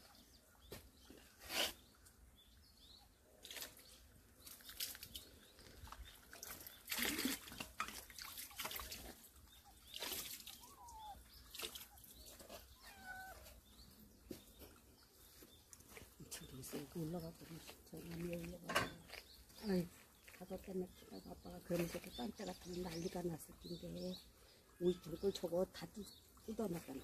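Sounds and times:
water splashing in plastic gutter: 4.4s - 12.6s.

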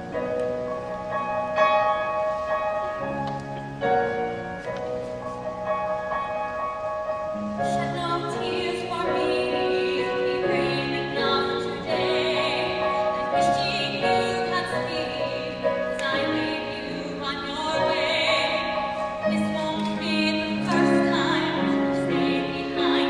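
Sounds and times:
instrumental accompaniment: 0.0s - 23.0s
woman singing a ballad: 7.6s - 23.0s.

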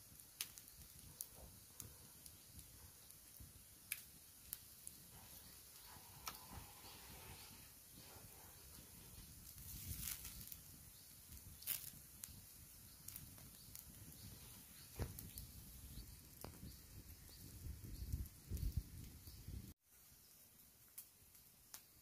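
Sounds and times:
wood fire crackling: 0.0s - 22.0s
sharp pops: 11.3s - 16.8s.

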